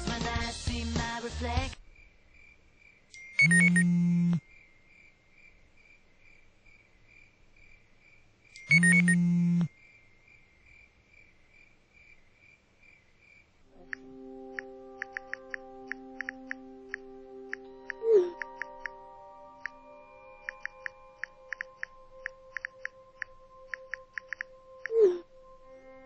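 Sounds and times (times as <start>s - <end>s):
cricket chirping: 1.8s - 14.0s, 17.6s - 25.9s
smartphone buzzing: 3.4s - 4.4s, 8.6s - 9.7s.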